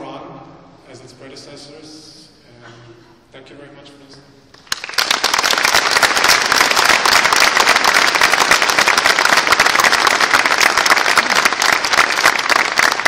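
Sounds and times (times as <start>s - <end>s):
audience applause: 4.6s - 13.0s.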